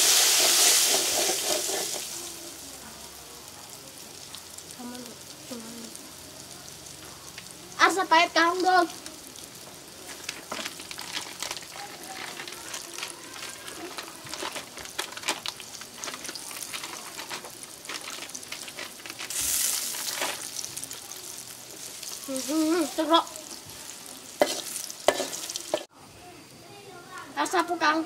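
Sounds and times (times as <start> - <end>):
child's voice: 4.8 - 6.0, 7.8 - 9.1, 11.7 - 14.3, 22.2 - 23.6, 26.2 - 28.0
packet ripping: 10.2 - 22.6
plastic packet crinkling: 10.2 - 25.8.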